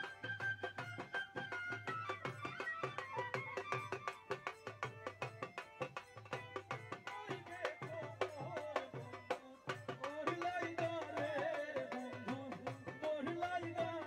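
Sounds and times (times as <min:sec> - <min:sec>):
dhol drum rhythm: 0:00.0 - 0:14.0
person singing folk melody: 0:07.0 - 0:14.0.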